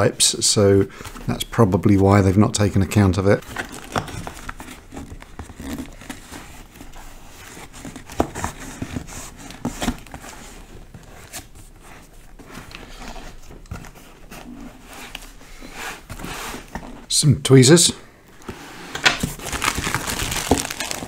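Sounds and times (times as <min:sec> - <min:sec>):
cardboard box rustling and scraping: 0:03.4 - 0:17.1
packing tape tearing: 0:19.0 - 0:21.0.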